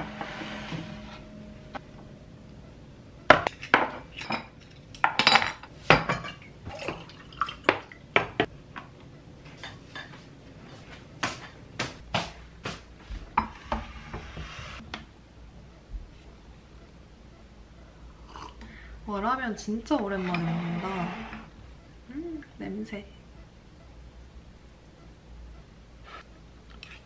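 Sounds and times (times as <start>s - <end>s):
soft scrape: 0.0s - 1.3s, 13.8s - 14.8s.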